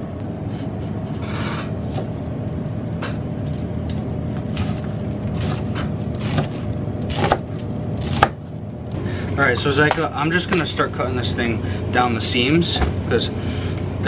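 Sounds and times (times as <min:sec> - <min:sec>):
steady low hum: 0:00.0 - 0:14.0
knife slicing cabbage on board: 0:01.8 - 0:02.2, 0:04.4 - 0:08.5.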